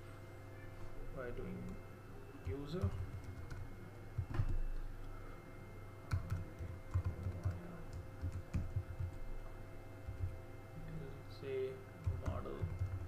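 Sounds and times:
faint steady hum: 0.0s - 13.0s
computer keyboard typing: 2.4s - 4.9s, 6.1s - 9.3s, 10.1s - 10.4s, 12.0s - 13.0s.

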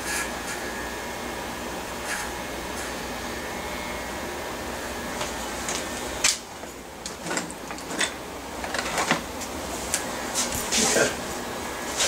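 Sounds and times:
electric hair clippers buzzing: 0.0s - 6.4s.

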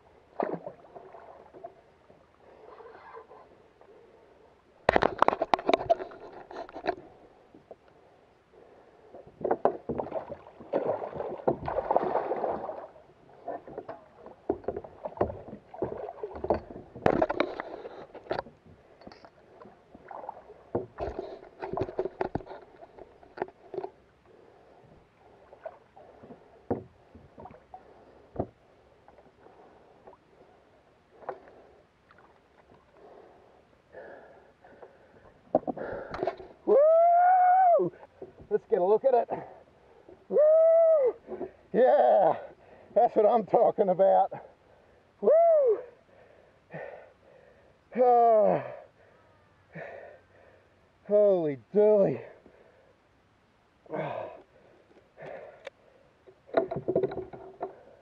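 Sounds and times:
paddle splashing water: 0.0s - 7.9s, 8.5s - 40.4s, 53.9s - 58.0s
water sloshing against plastic hull: 0.3s - 1.9s, 4.8s - 7.8s, 9.1s - 30.4s, 55.2s - 58.0s.

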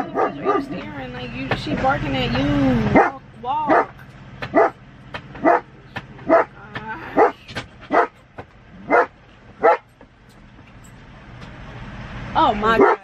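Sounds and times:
dog barking sharply: 2.9s - 4.8s, 5.4s - 6.6s, 7.2s - 8.2s, 8.9s - 9.9s.

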